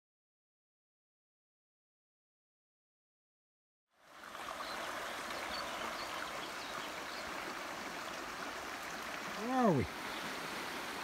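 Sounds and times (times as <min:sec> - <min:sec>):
river running over rocks: 0:04.0 - 0:11.0.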